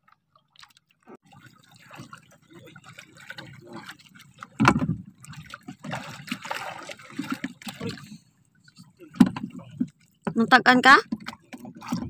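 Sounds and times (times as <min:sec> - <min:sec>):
water splashing and trickling: 0:00.0 - 0:12.0
thump on boat hull: 0:04.6 - 0:05.0.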